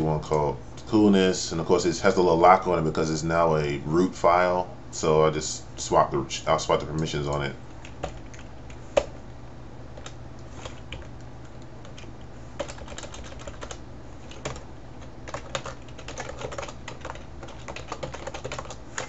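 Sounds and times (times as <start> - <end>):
steady low hum: 0.0 - 19.0
keyboard typing: 7.8 - 9.1, 10.0 - 14.6, 15.2 - 19.0.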